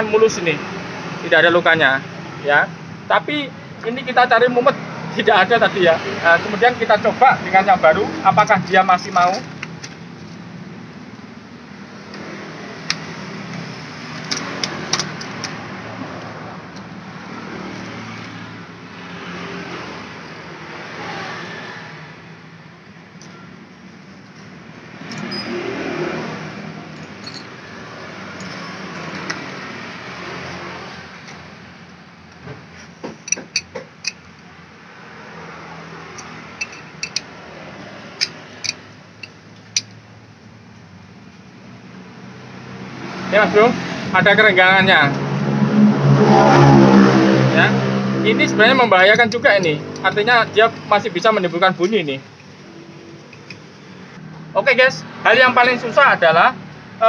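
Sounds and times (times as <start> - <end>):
engine and traffic hum: 0.0 - 57.0
metallic clinks of parts: 26.9 - 27.6, 28.4 - 29.3, 33.2 - 34.4, 36.2 - 37.3, 38.2 - 40.0, 53.2 - 53.7.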